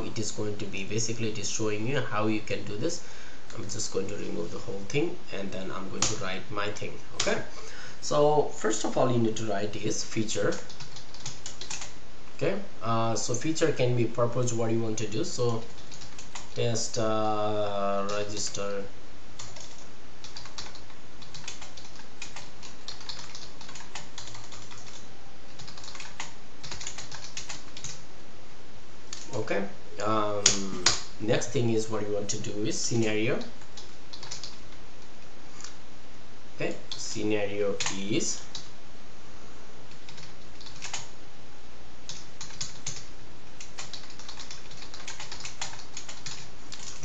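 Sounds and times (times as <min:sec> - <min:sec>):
steady background hiss: 0:00.0 - 0:47.0
typing on a keyboard: 0:10.5 - 0:11.9, 0:15.6 - 0:16.6, 0:19.4 - 0:25.0, 0:25.6 - 0:28.0, 0:33.7 - 0:34.6, 0:40.0 - 0:41.1, 0:42.1 - 0:43.0, 0:43.6 - 0:47.0.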